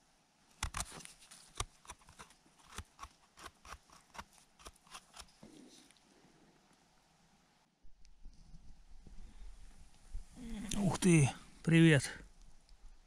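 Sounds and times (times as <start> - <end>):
knife scraping soil: 0.5 - 6.0.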